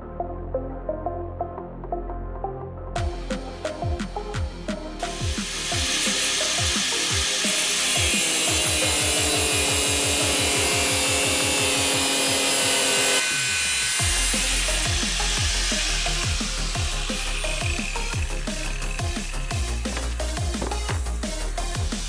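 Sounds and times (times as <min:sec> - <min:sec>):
electronic dance music: 0:03.0 - 0:12.4, 0:14.0 - 0:22.0
angle grinder cutting steel: 0:05.0 - 0:22.0.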